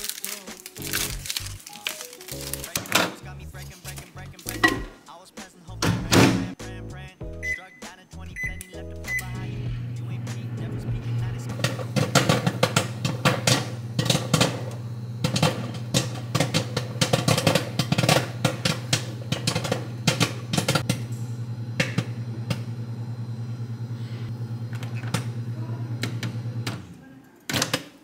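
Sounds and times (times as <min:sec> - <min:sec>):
popcorn popping: 0:00.0 - 0:05.1, 0:11.3 - 0:22.8
microwave oven humming: 0:08.4 - 0:27.3.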